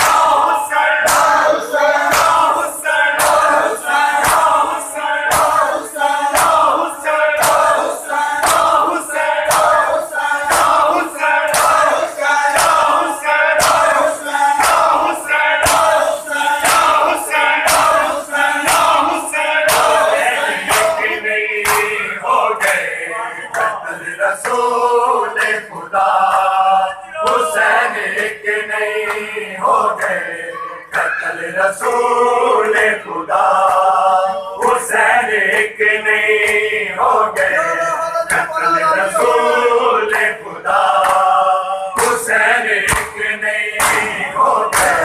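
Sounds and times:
hands slapping chests: 0:00.0 - 0:24.8, 0:29.0 - 0:29.3, 0:38.2 - 0:38.8, 0:40.1 - 0:41.4, 0:42.0 - 0:45.0
men chanting in unison: 0:00.0 - 0:45.0.

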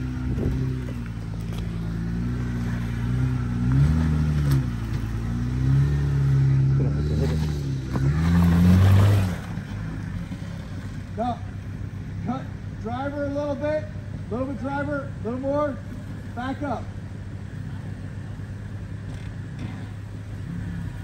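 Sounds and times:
engine revving and idling: 0:00.0 - 0:21.0.

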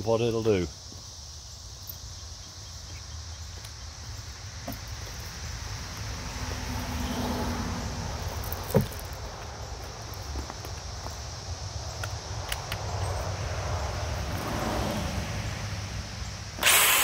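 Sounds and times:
insects droning: 0:00.0 - 0:17.0
footsteps on gravelly asphalt: 0:08.2 - 0:12.2.

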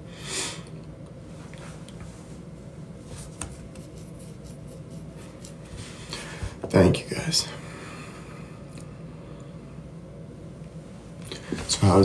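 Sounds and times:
soft breath: 0:05.7 - 0:06.6, 0:07.5 - 0:09.8.

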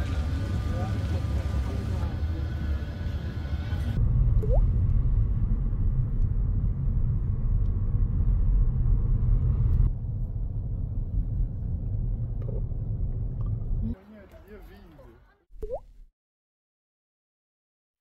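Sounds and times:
car road and wind noise: 0:03.2 - 0:13.8.

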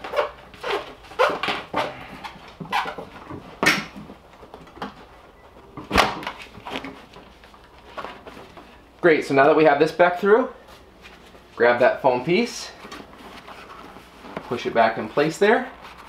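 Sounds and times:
fabric rustling and scraping: 0:12.7 - 0:16.0.

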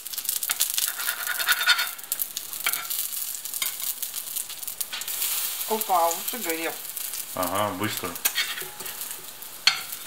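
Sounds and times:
pancakes sizzling in hot oil: 0:00.0 - 0:10.0
spatula scraping a pan: 0:00.5 - 0:02.0, 0:08.2 - 0:10.0.

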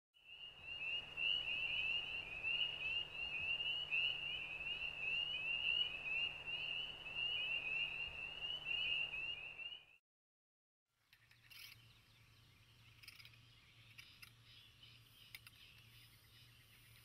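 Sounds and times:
frogs calling: 0:00.2 - 0:10.0.

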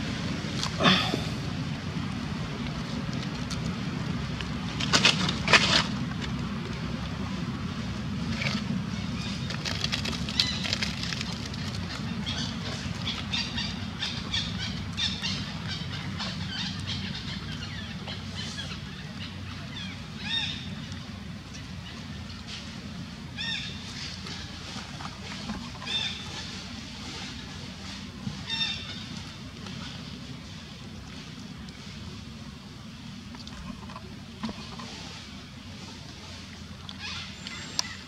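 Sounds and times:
steady low hum: 0:00.0 - 0:38.0
dry leaves rustling and crackling: 0:08.3 - 0:13.4.

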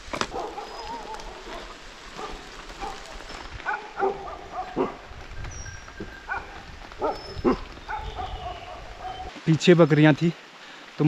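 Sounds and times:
steady rain: 0:00.0 - 0:11.0
dog barking: 0:00.3 - 0:05.1, 0:06.3 - 0:09.3.

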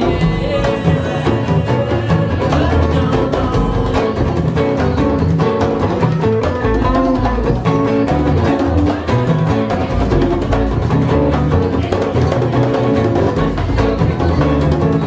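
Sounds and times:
congas: 0:00.0 - 0:15.0
electric guitar lead: 0:00.0 - 0:15.0
plucked double bass: 0:00.0 - 0:15.0.

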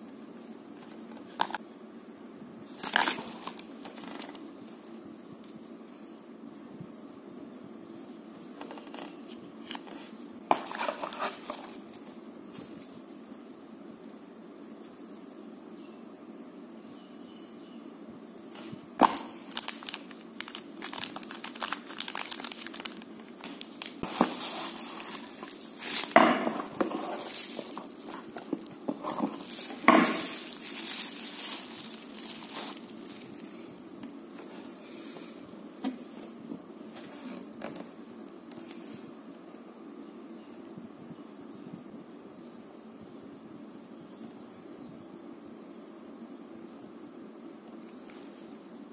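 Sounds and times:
low background hum: 0:00.0 - 0:48.9
packaging crinkling and rustling: 0:00.8 - 0:01.6, 0:02.7 - 0:04.8, 0:08.4 - 0:12.1, 0:18.5 - 0:33.5.

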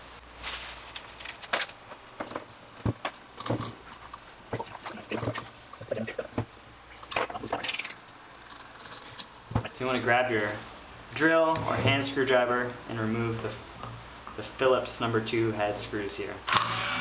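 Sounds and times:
metal hardware clinking: 0:00.8 - 0:04.2, 0:08.3 - 0:09.6.

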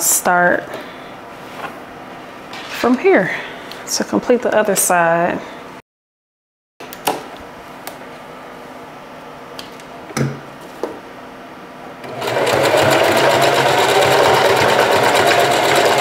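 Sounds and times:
sewing machine stitching: 0:12.0 - 0:16.0.

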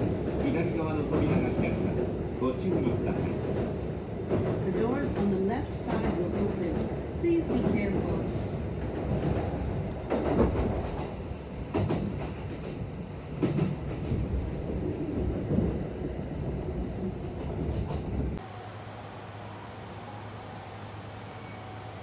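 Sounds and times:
train wheels rumbling on rails: 0:00.0 - 0:18.6
train wheels clacking: 0:02.6 - 0:14.5.

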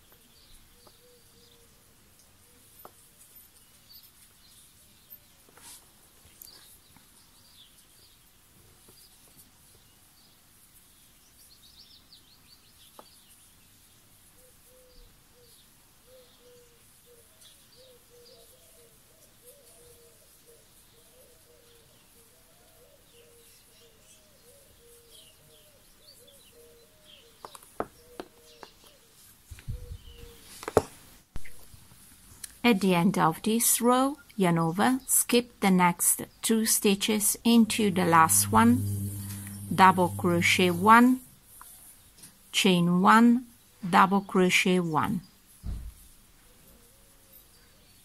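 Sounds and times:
small birds chirping: 0:00.0 - 0:02.9
low wavering call: 0:37.5 - 0:41.2.

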